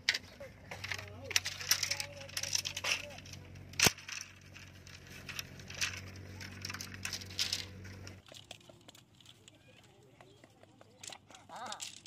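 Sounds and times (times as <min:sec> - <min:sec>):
bamboo sticks clattering: 0:00.0 - 0:12.0
sharp crack: 0:01.4 - 0:04.6.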